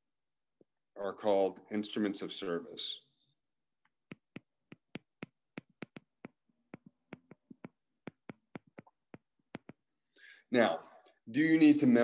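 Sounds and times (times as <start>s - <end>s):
stylus tapping on tablet screen: 3.8s - 10.0s.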